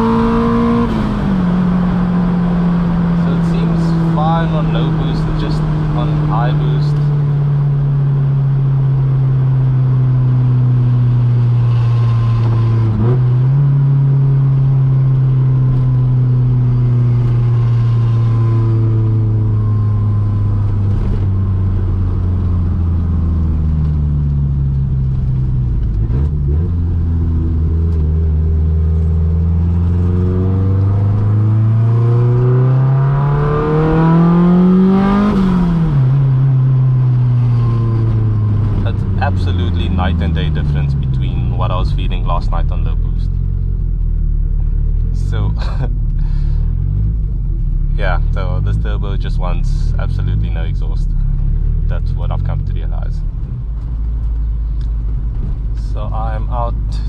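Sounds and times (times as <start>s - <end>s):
car engine revving while driving: 0.0s - 57.0s.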